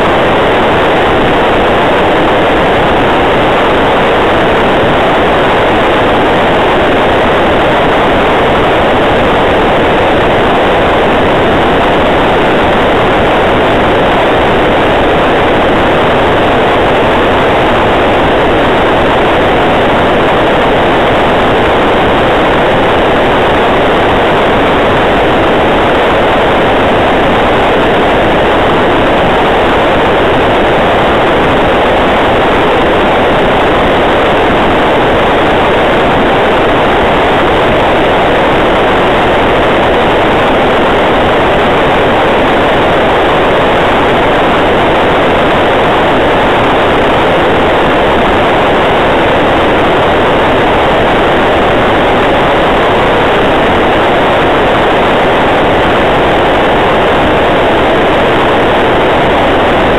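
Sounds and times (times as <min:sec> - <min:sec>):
radio static hiss: 0:00.0 - 0:59.9.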